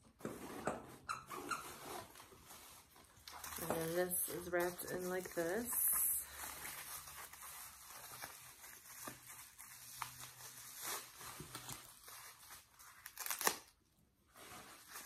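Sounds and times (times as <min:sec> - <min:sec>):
wrapping paper tearing and crinkling: 0:01.8 - 0:15.0.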